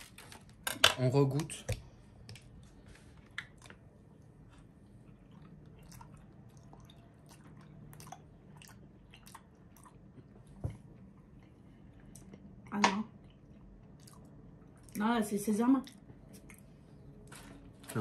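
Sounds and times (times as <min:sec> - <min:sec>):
low room hum: 0:00.0 - 0:18.0
wet chewing clicks: 0:03.2 - 0:10.4, 0:12.1 - 0:15.0.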